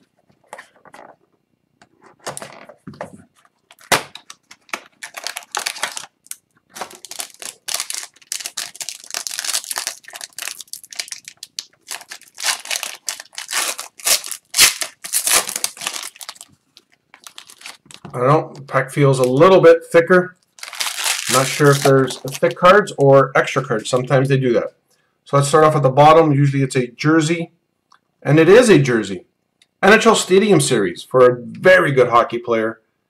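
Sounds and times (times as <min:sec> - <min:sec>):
card pack wrapper crinkling and tearing: 0:03.5 - 0:18.1, 0:20.4 - 0:23.1.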